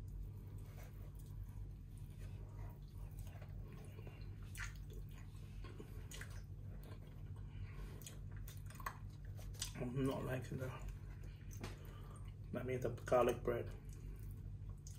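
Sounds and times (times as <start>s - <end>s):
steady low hum: 0.0s - 14.9s
eating sounds: 0.2s - 12.5s, 13.6s - 14.9s
wet smacks of tearing chicken: 3.0s - 9.9s.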